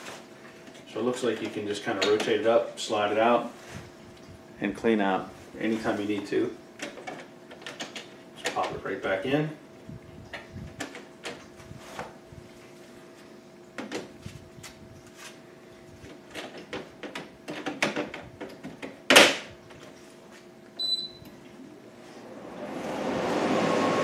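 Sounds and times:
faint air conditioner hum: 0.0 - 24.0
short electronic beep: 20.8 - 21.2.

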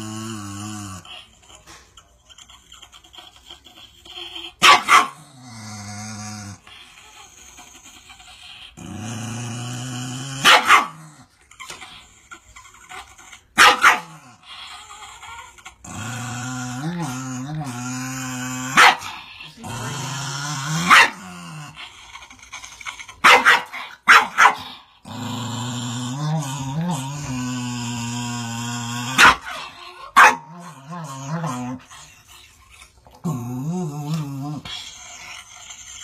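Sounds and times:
dog growling: 0.0 - 36.0
dog barking: 4.6 - 5.2, 10.4 - 11.0, 13.6 - 14.1, 18.8 - 19.0, 20.9 - 21.2, 23.2 - 24.6, 30.2 - 30.5.

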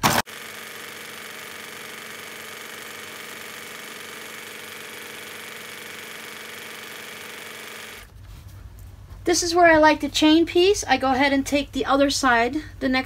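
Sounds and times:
sewing machine stitching: 0.0 - 8.1.

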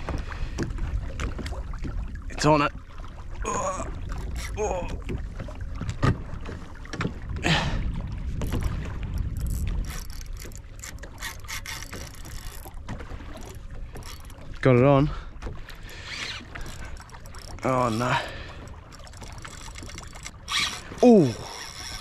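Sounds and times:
water lapping against boat hull: 0.0 - 22.0
wind on microphone: 3.8 - 12.6
fishing rod clicks and knocks: 8.4 - 14.5, 15.4 - 22.0.

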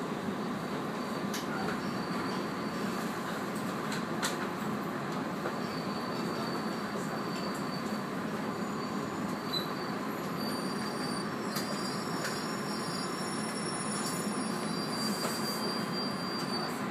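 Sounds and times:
train running gear rumble: 0.0 - 16.9
high brake squeal: 1.0 - 3.2, 5.6 - 16.9.

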